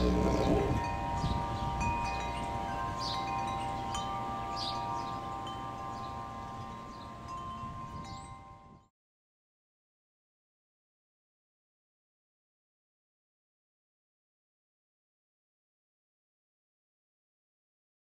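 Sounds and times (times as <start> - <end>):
wind rumble on microphone: 0.0 - 5.4, 6.0 - 8.9
metal wind chimes ringing: 0.0 - 8.9.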